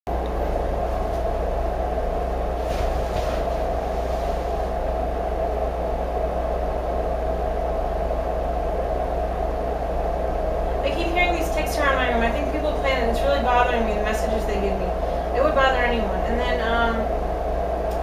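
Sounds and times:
droning hum: 0:00.1 - 0:18.0
low buzz: 0:00.1 - 0:18.0
faint rustle: 0:02.6 - 0:04.7.

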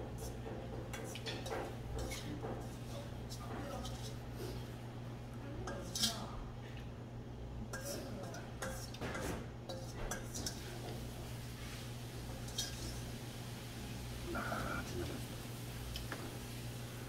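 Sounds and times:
metal spoon clinking on bowls: 0:12.4 - 0:13.0.

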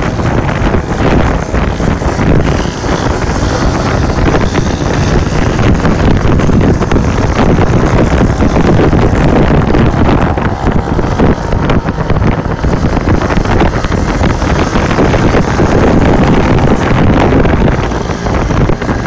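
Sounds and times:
small motorcycle engine running: 0:00.0 - 0:19.0
wind buffeting microphone: 0:00.0 - 0:19.0.

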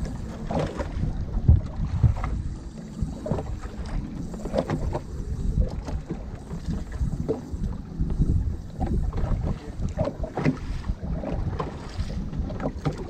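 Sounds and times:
wind buffeting microphone: 0:00.0 - 0:13.0
knocks on boat: 0:00.5 - 0:02.3.

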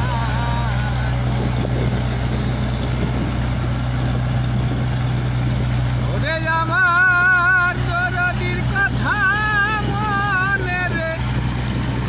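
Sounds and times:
man singing: 0:00.0 - 0:01.3, 0:06.1 - 0:11.3
low engine drone: 0:00.0 - 0:12.0.

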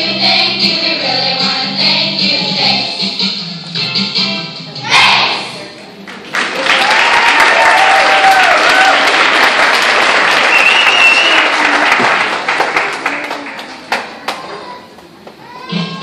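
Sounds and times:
audience clapping and cheering: 0:06.1 - 0:15.2.

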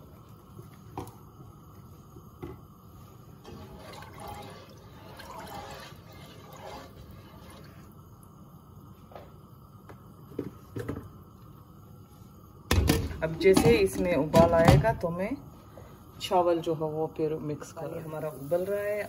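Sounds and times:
water sloshing in a pot: 0:00.0 - 0:09.1.

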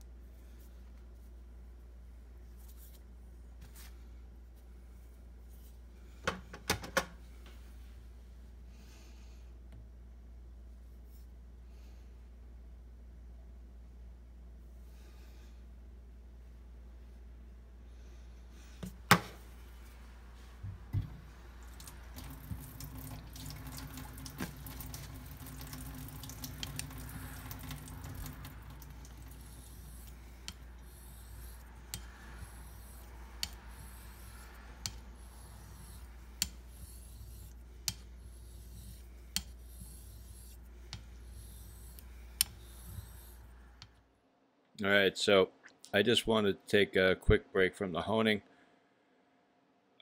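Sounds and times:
razor rubbing on wet stone: 0:26.5 - 0:43.6.

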